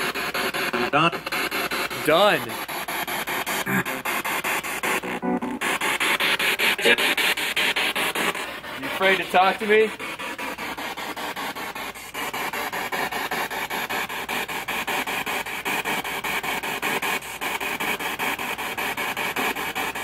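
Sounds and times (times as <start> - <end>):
pulsing radio static: 0.0 - 13.9.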